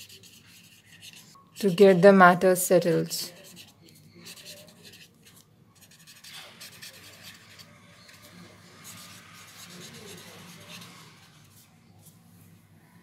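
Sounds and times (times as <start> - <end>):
pen scratching on paper: 0.0 - 1.8, 3.3 - 11.7.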